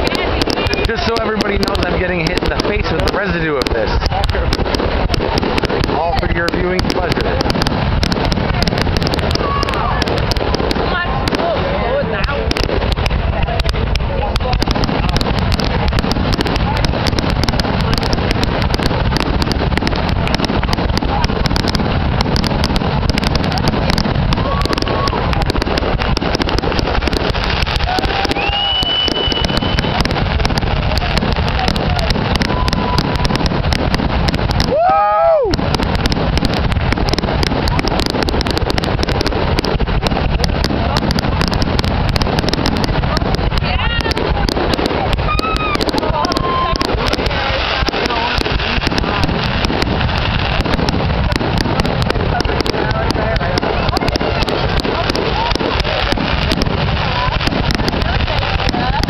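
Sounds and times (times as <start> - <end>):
fireworks booming and crackling: 0.0 - 59.0
high whistling tone: 28.3 - 30.0.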